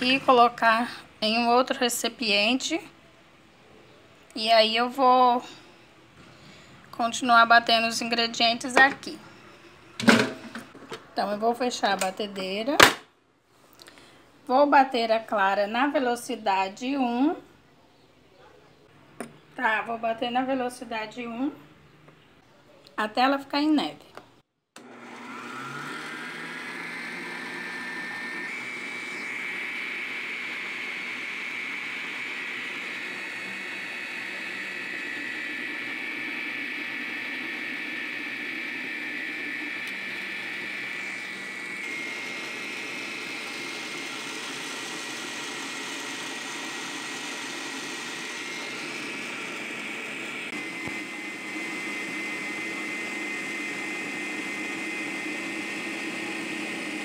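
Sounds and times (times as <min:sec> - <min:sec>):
stand mixer motor whine: 0:24.8 - 0:57.0.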